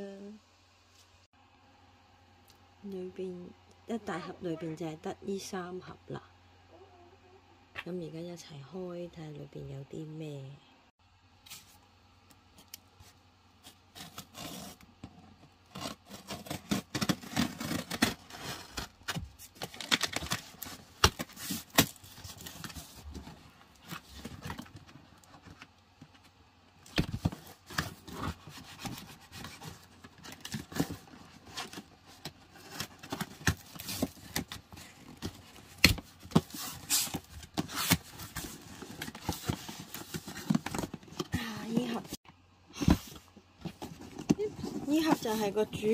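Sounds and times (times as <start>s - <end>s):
cardboard scraping and rubbing: 13.0s - 24.7s, 27.0s - 42.2s, 42.8s - 45.9s.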